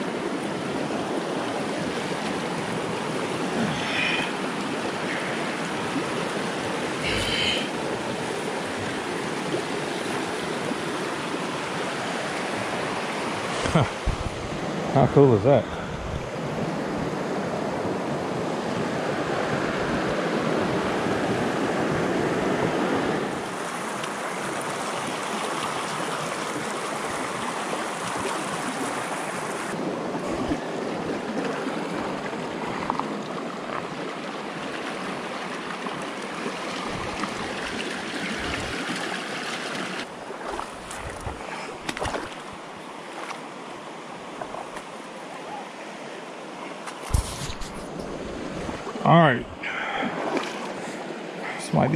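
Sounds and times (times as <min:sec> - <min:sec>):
river water rushing over rocks: 0:00.0 - 0:15.0, 0:21.9 - 0:47.2.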